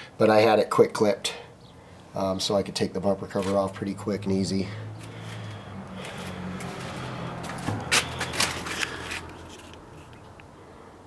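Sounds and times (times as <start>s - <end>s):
rustling handling noise: 5.0s - 10.3s.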